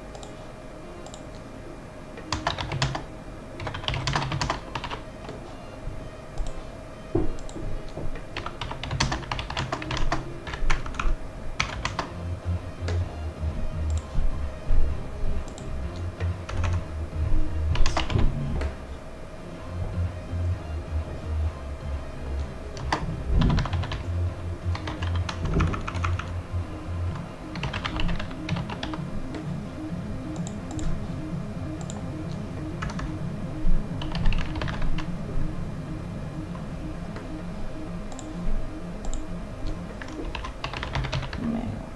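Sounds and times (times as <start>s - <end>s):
quiet background music with beat: 0.0s - 41.8s
faint steady hum: 0.0s - 41.9s
computer keyboard keys tapping: 2.2s - 5.4s, 6.4s - 6.6s, 7.2s - 12.2s, 15.4s - 16.8s, 17.7s - 18.7s, 22.4s - 26.4s, 27.1s - 29.6s, 30.3s - 31.0s, 31.8s - 33.2s, 34.0s - 35.1s, 38.0s - 38.4s, 39.0s - 41.4s.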